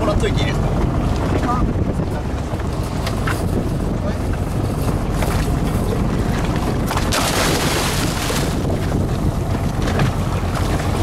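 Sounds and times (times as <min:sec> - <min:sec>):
boat engine rumble: 0:00.0 - 0:11.0
wind on microphone: 0:00.0 - 0:11.0
diver splashing into water: 0:07.0 - 0:08.6.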